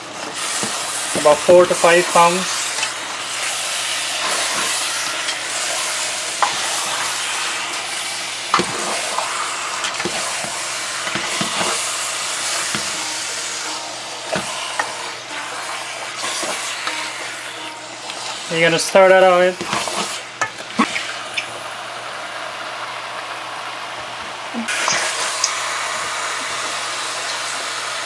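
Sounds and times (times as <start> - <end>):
meat sizzling in hot oil: 0.0 - 28.0
spatula stirring in pot: 0.1 - 21.5.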